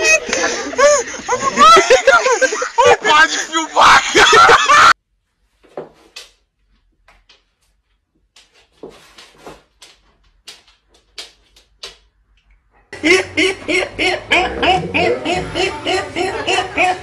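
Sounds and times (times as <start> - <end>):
people chuckling: 0.0 - 5.0, 13.0 - 17.0
quiet knocks and steps: 5.4 - 12.9.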